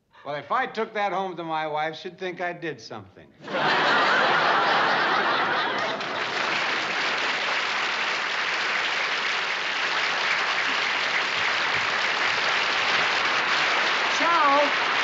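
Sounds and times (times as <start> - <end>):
audience laughing: 3.4 - 7.4
audience applause: 3.6 - 15.0.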